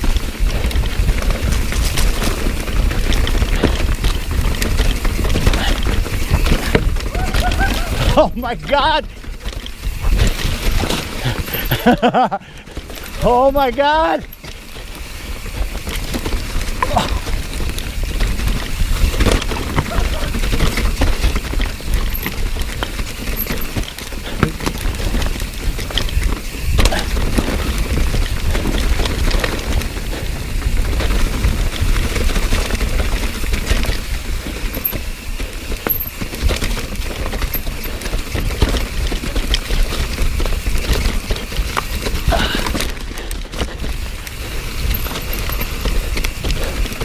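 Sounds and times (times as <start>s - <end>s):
wind rumble on microphone: 0.0s - 11.9s
bike rattling and clattering: 0.0s - 47.0s
bike tyres rolling over leaves and rocks: 0.0s - 47.0s.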